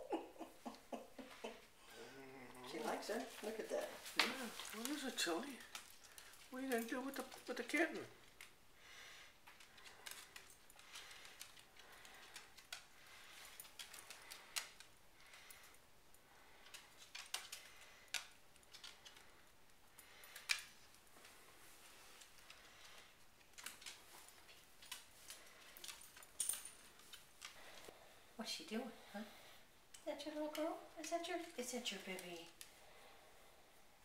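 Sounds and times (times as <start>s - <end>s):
dog claws ticking on wood floor: 9.4s - 15.7s, 22.1s - 27.8s.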